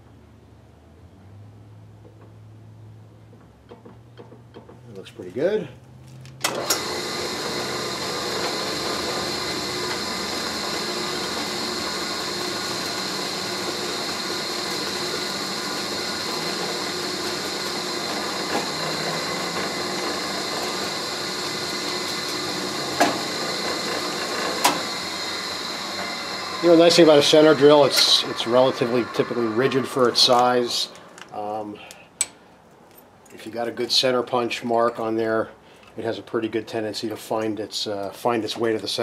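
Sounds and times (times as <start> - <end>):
drill press running: 6.4 - 32.0.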